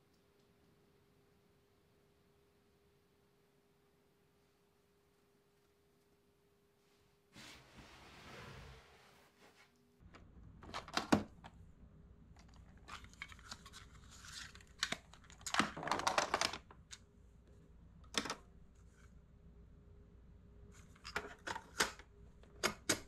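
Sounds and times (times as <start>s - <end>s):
cassette cases rattling: 10.6s - 11.6s, 12.4s - 17.0s
cassette tapes clicking: 18.1s - 18.4s, 21.1s - 23.0s.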